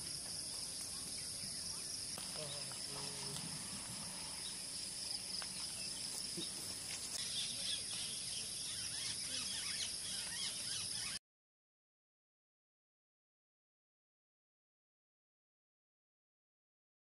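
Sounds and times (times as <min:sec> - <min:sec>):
birds chirping: 0:00.0 - 0:11.2
insect chorus drone: 0:00.0 - 0:11.2.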